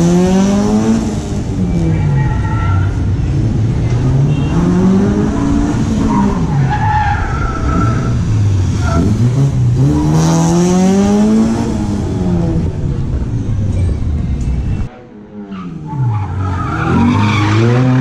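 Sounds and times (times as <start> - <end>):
car engine revving: 0.0 - 13.5.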